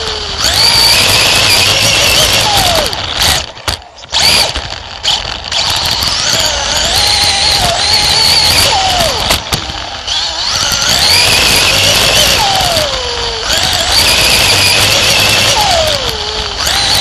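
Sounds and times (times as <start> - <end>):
race car engine at high revs: 0.0 - 17.0.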